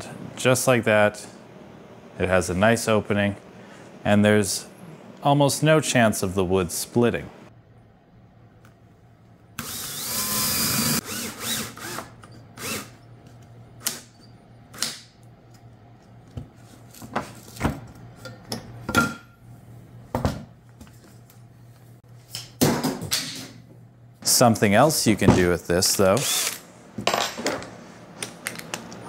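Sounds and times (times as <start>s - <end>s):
cordless drill running: 9.6s - 13.0s, 26.2s - 26.6s.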